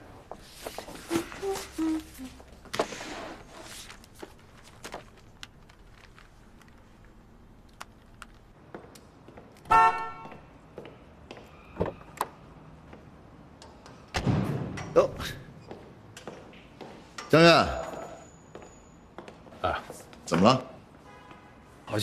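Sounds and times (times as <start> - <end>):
car horn toot echoing: 9.7 - 10.4, 21.0 - 21.8
thud: 14.2 - 14.8.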